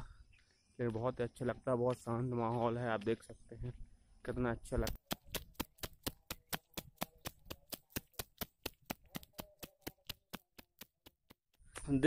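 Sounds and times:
running footsteps in sandals: 0:00.8 - 0:03.4, 0:04.8 - 0:11.6.

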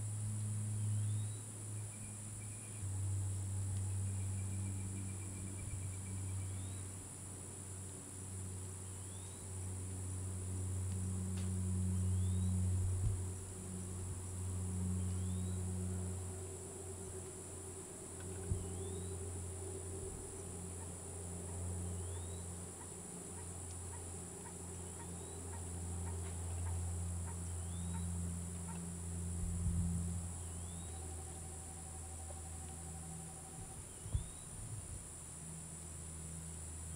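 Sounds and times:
insects droning: 0:00.0 - 0:36.9
low droning hum: 0:00.0 - 0:36.9
bird rising note: 0:14.9 - 0:22.5.

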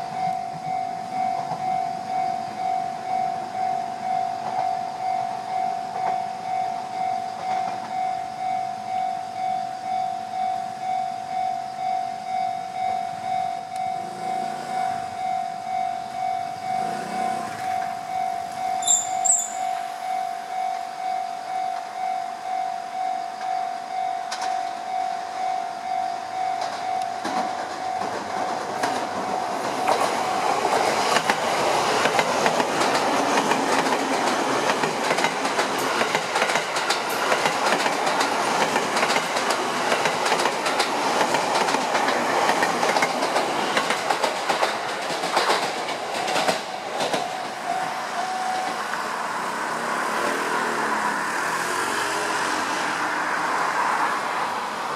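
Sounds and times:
level crossing warning bell: 0:00.0 - 0:42.0, 0:42.9 - 0:49.3
train wheels clattering over joints: 0:26.6 - 0:47.6.

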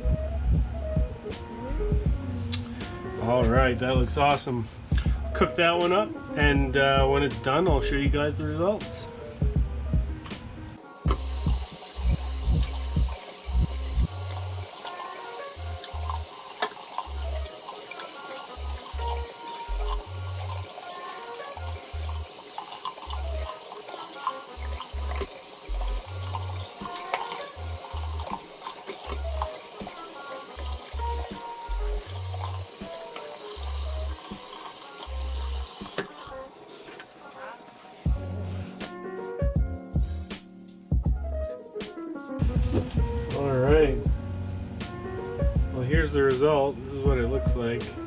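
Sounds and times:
background music with bass: 0:00.0 - 0:16.3, 0:17.1 - 0:22.4, 0:23.0 - 0:23.6, 0:24.5 - 0:28.4, 0:29.0 - 0:34.4, 0:35.1 - 0:36.6, 0:38.0 - 0:48.0
faucet water running into sink: 0:11.1 - 0:38.4.

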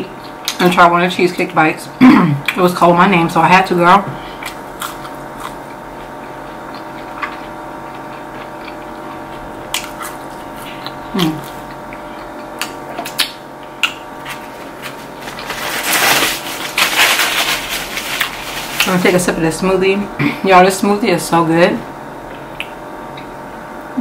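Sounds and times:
steady background hum: 0:00.0 - 0:24.0
wet chewing clicks and smacks: 0:04.4 - 0:14.0, 0:22.3 - 0:23.3.

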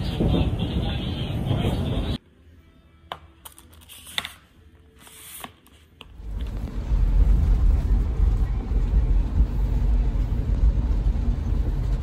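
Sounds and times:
car cabin rumble: 0:06.2 - 0:12.0.

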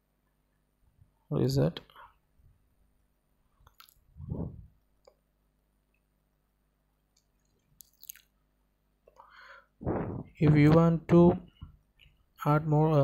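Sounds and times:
soft low thump: 0:09.8 - 0:11.7.

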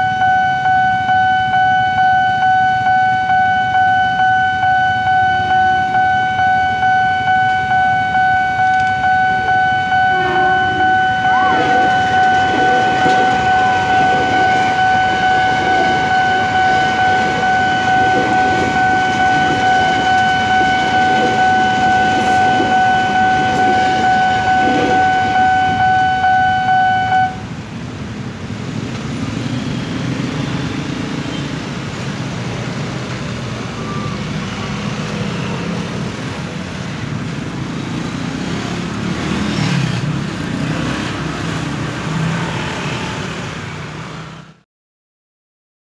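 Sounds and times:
level crossing warning bell: 0:00.0 - 0:27.6
electric train rumbling past: 0:09.5 - 0:29.4.

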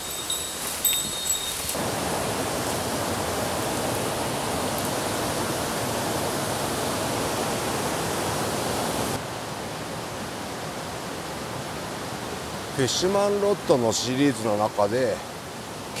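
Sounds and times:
stream water rushing: 0:00.0 - 0:16.0.

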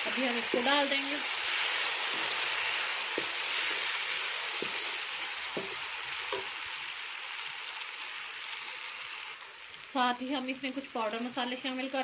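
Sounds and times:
vegetables sizzling in oil: 0:00.0 - 0:12.0
spoon knocking on pot: 0:05.5 - 0:06.6.

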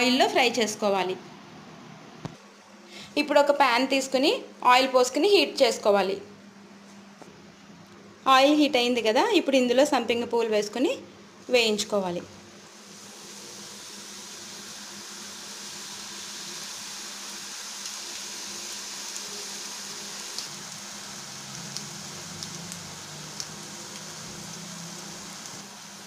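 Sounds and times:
dough deep-frying in oil: 0:12.6 - 0:26.0.

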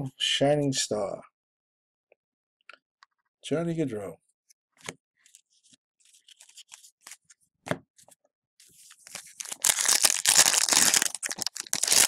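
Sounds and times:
plastic wrapper tearing: 0:08.9 - 0:12.0.

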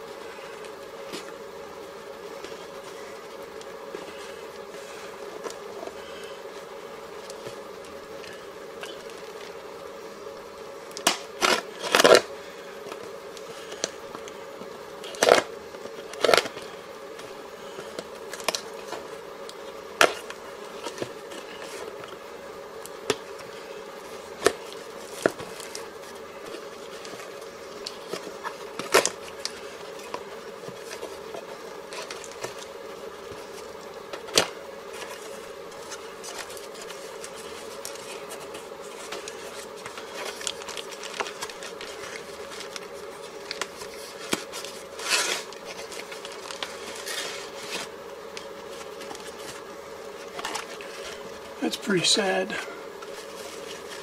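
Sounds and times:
steady background hum: 0:00.0 - 0:54.0
packing rustling: 0:15.0 - 0:51.6, 0:52.9 - 0:54.0.

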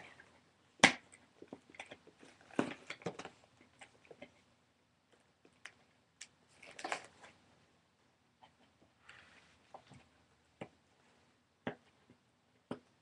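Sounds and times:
package crinkling and clicking: 0:05.6 - 0:07.1.

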